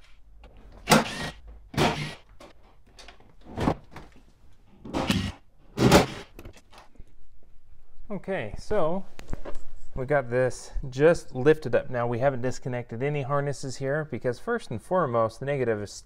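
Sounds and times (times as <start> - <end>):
cordless power driver running: 0.9 - 2.2.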